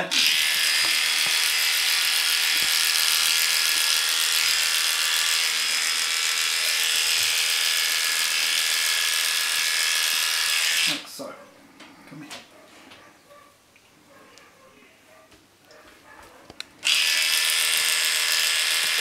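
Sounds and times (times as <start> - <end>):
electric dog clippers buzzing: 0.0 - 11.0, 16.8 - 19.0.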